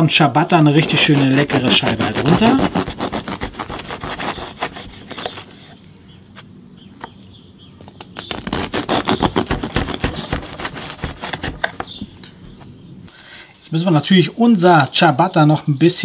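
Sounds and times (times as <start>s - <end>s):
knife sawing through crusty bread: 0.8s - 5.7s, 8.2s - 11.7s.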